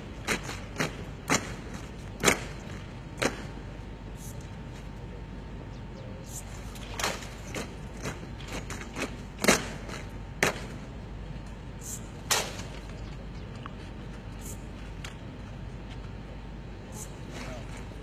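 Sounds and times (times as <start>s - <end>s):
soldiers slapping and stamping: 0.0s - 3.7s, 6.7s - 10.9s
steady background noise: 0.0s - 18.0s.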